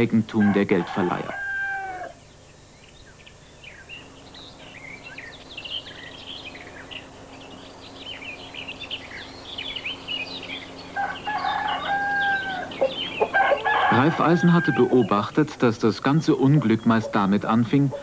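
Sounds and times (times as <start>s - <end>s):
faint steady hum: 0.0s - 18.0s
small birds chirping: 0.0s - 18.0s
rooster crowing: 0.4s - 2.2s, 10.9s - 15.2s.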